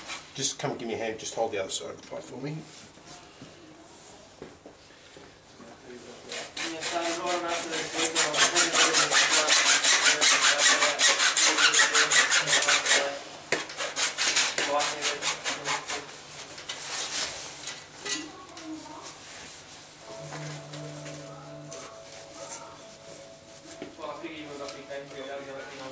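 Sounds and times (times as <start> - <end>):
hacksaw cutting plastic pipe: 6.3 - 16.1.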